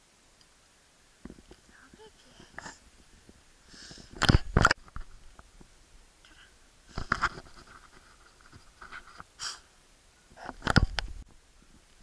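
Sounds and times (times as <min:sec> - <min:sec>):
fur rubbing on microphone: 0:06.9 - 0:09.3.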